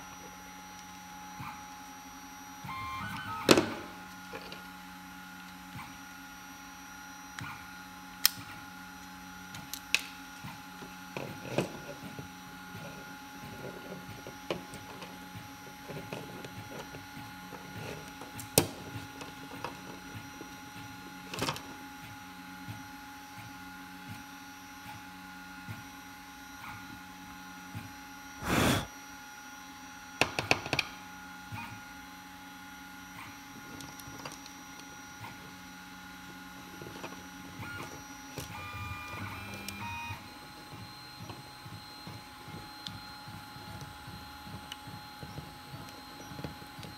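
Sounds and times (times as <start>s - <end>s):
steady background hum: 0.0s - 29.3s.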